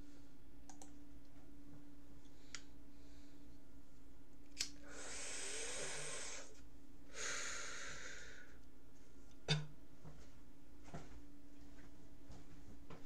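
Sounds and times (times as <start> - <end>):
man breathing heavily: 4.8 - 8.6.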